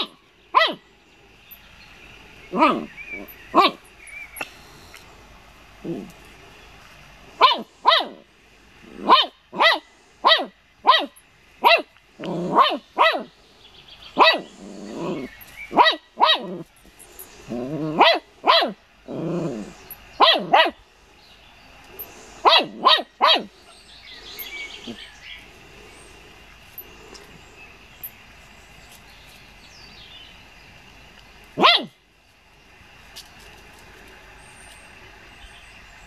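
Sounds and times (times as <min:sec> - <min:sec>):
puppy yapping: 0:02.5 - 0:03.8, 0:07.4 - 0:08.2, 0:09.0 - 0:13.3, 0:14.2 - 0:16.6, 0:17.9 - 0:18.8, 0:20.2 - 0:20.8, 0:31.6 - 0:31.9.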